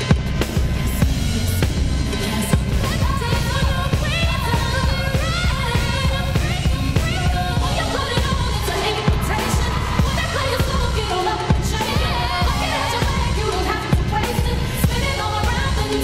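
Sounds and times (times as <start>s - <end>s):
pop song with vocals and beat: 0.0s - 16.0s.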